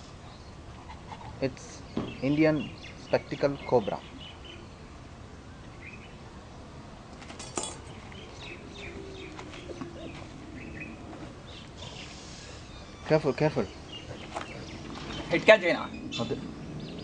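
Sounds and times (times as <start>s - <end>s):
metal stick clinking on stones: 7.3s - 8.0s
faint bird chirps: 7.8s - 17.0s.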